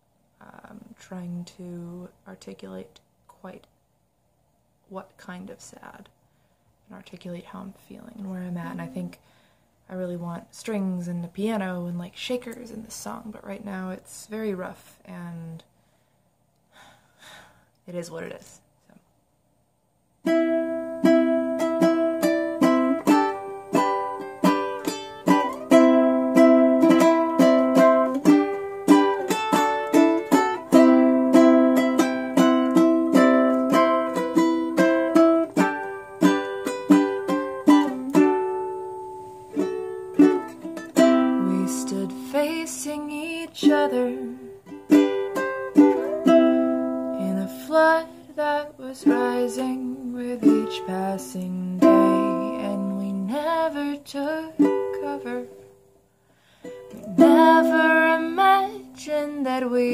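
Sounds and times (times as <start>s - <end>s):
ukulele strumming chords: 8.6s - 9.1s, 20.2s - 55.8s, 56.6s - 59.9s.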